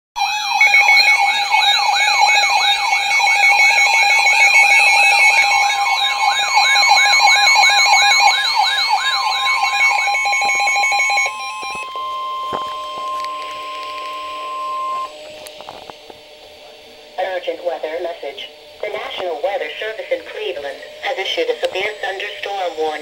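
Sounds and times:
siren-like alarm sweep: 0:00.2 - 0:23.0
steady alarm tone: 0:00.2 - 0:23.0
pulsing beeps: 0:00.4 - 0:15.6.

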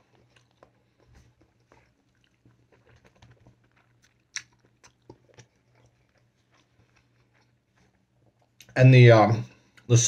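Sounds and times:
close-up chewing: 0:00.0 - 0:08.8
wet mouth clicks: 0:01.4 - 0:07.5.

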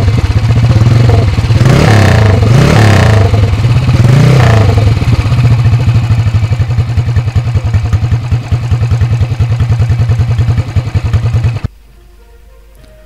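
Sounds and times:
motorcycle engine idling: 0:00.0 - 0:11.7.

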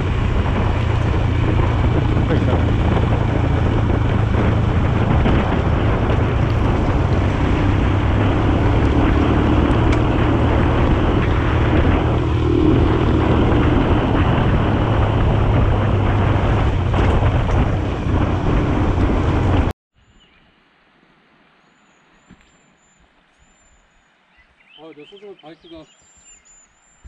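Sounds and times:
motorcycle engine running: 0:00.0 - 0:19.7
wind noise on microphone: 0:00.0 - 0:20.3.

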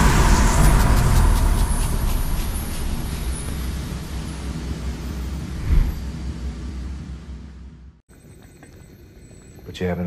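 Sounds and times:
deep steady rumble: 0:00.0 - 0:08.0.

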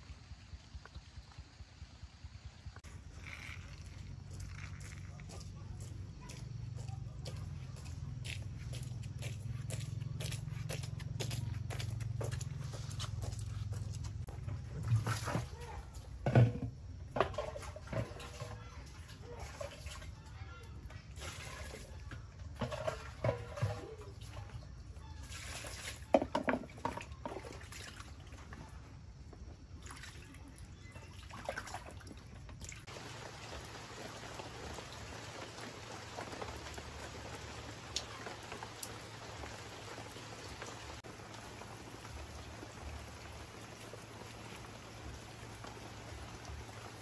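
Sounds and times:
water trickling and dripping: 0:00.0 - 0:28.7, 0:29.4 - 0:47.0
sharp knocks and splashes: 0:14.1 - 0:20.2, 0:21.1 - 0:24.6, 0:25.2 - 0:28.8, 0:29.7 - 0:47.0
steady hiss of water: 0:32.6 - 0:47.0.

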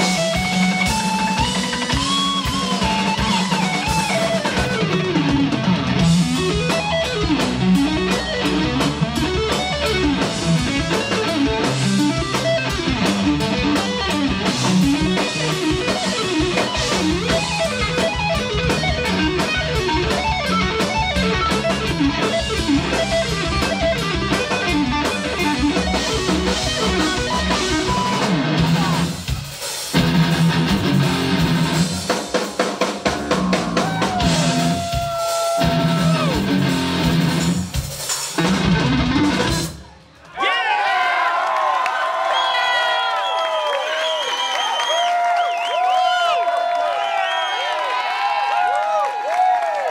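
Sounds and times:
electric guitar played fast: 0:00.0 - 0:39.9
drum kit: 0:00.0 - 0:40.2.

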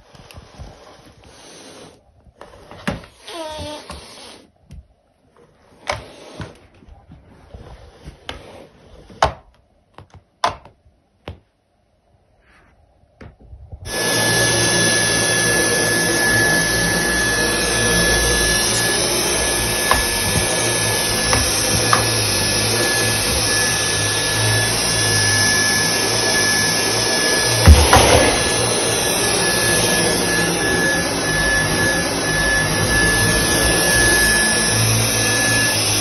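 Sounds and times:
vacuum cleaner running: 0:13.9 - 0:36.0.

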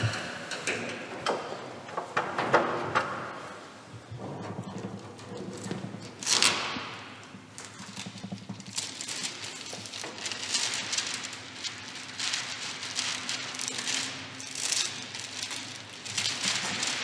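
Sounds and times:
thin sheet crinkling and rustling: 0:04.2 - 0:17.0.

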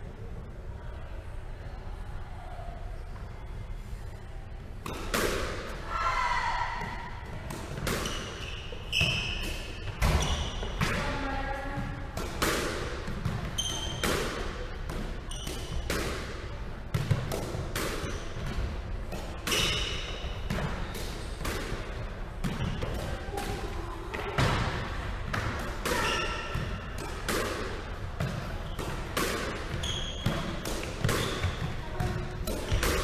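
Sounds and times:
squash ball impacts: 0:04.8 - 0:05.8, 0:06.4 - 0:33.0
shoes squeaking on wooden floor: 0:29.7 - 0:30.6.

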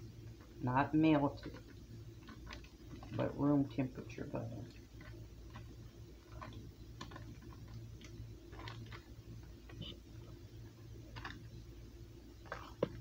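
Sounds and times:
low steady hum: 0:00.0 - 0:13.0
spatula scraping butter: 0:04.7 - 0:09.1.

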